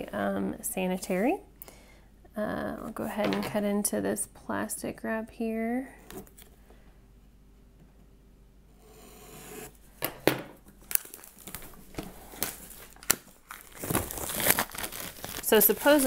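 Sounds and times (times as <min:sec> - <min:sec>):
plastic wrap crinkling and tearing: 0:10.8 - 0:16.0
scissors cutting plastic wrap: 0:12.3 - 0:16.0.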